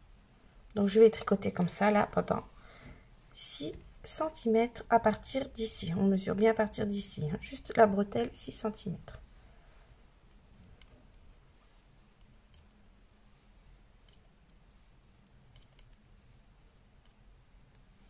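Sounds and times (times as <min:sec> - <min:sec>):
knitting needles clicking: 0:10.3 - 0:11.4, 0:12.2 - 0:12.9, 0:14.0 - 0:14.6, 0:15.2 - 0:17.9.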